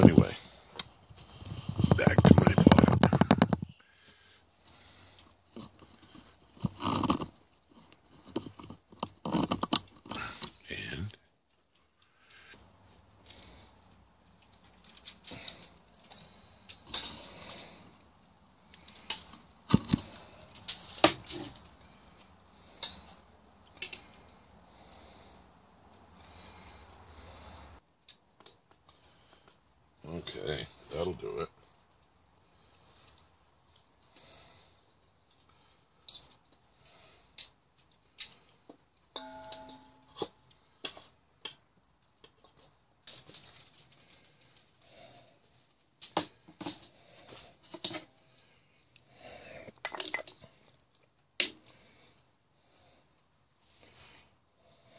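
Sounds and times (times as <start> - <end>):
bowl ringing: 39.2 - 40.2
metal cookware clinking: 39.2 - 40.2.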